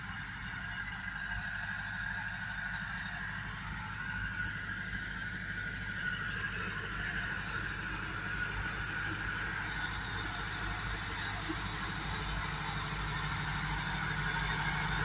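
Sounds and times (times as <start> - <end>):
high whine: 0.0 - 15.0
tractor diesel engine under load: 0.0 - 15.0.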